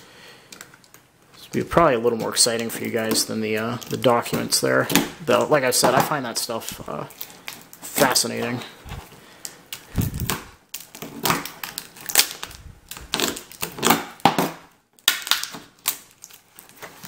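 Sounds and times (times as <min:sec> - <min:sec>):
packing tape crackling: 0:06.6 - 0:17.0.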